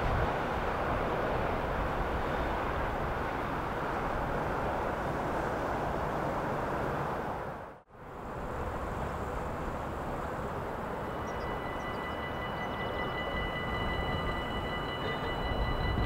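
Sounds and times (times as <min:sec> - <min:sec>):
rushing background noise: 0:00.0 - 0:16.0
level crossing warning bell: 0:10.5 - 0:16.0.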